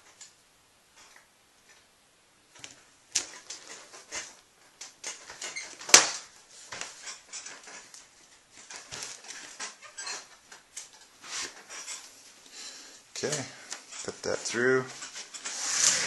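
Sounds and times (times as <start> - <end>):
screwdriver scratching through foam: 15.4 - 16.0.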